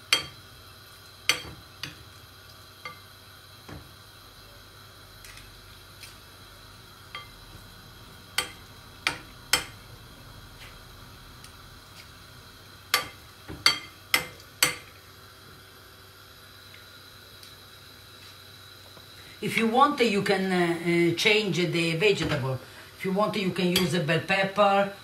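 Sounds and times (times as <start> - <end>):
oil sizzling: 0.0 - 19.4.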